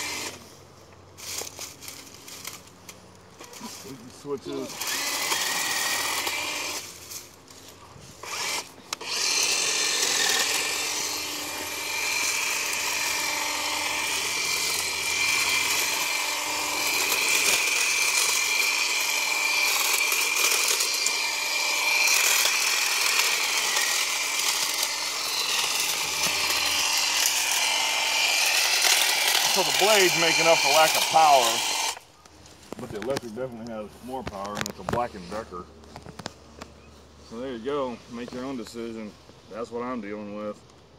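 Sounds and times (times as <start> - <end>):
hedge trimmer whining: 0.0 - 0.5, 1.2 - 32.1.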